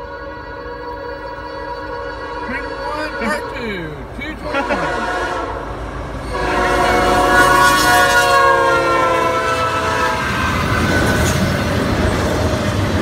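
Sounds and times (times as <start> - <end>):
locomotive horn chord: 0.0 - 10.8
freight cars rumbling and clattering: 10.4 - 13.0.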